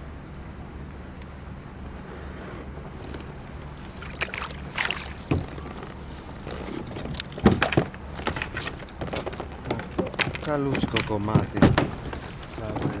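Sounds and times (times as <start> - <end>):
fish splashing at surface: 3.9 - 7.8
knocks against kayak: 7.4 - 8.4, 9.0 - 13.0.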